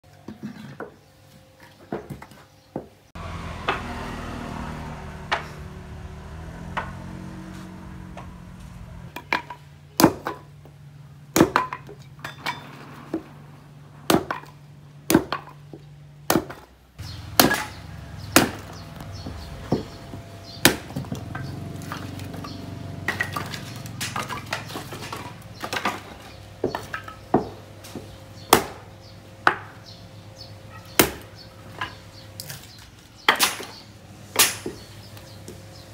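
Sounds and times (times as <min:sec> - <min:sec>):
hatchet chopping wood: 0:09.1 - 0:10.5, 0:11.3 - 0:12.0, 0:14.1 - 0:22.4, 0:23.0 - 0:29.8, 0:31.0 - 0:32.6, 0:33.3 - 0:33.8, 0:34.4 - 0:34.9.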